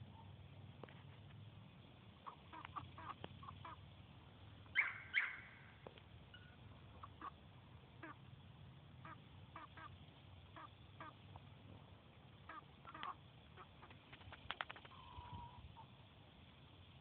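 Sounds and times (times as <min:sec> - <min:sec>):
faint rooster clucking: 0:14.6 - 0:16.0.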